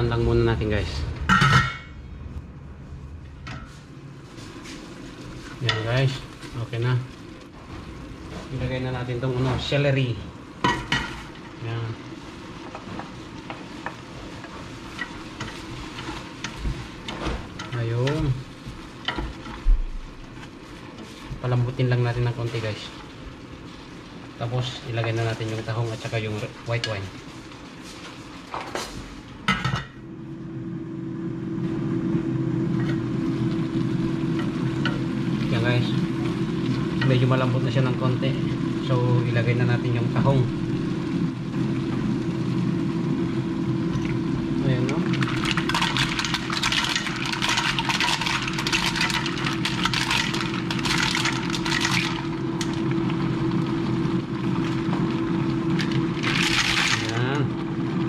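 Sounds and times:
steady low hum: 0.0s - 58.0s
vegetables sauteing in pot: 3.4s - 58.0s
mussel shells clattering in a pot: 45.1s - 52.8s, 55.8s - 57.2s.

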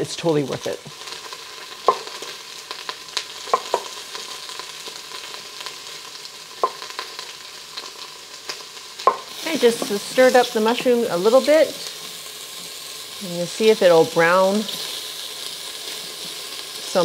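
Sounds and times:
mushrooms sizzling in oil: 0.0s - 17.0s
utensil knocking against pot: 3.5s - 3.9s.

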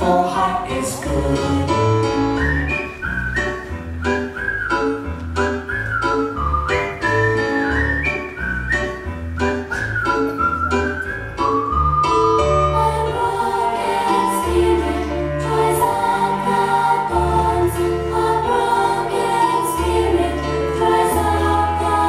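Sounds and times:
children's choir singing: 12.5s - 22.0s.

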